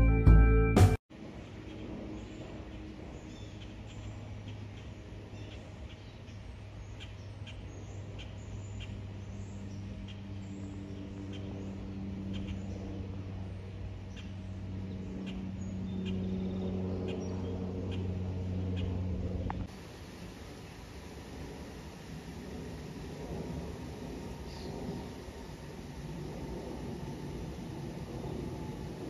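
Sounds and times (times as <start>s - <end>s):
airplane engines droning overhead: 0.0s - 29.0s
birds chirping: 1.4s - 19.7s, 23.9s - 26.0s.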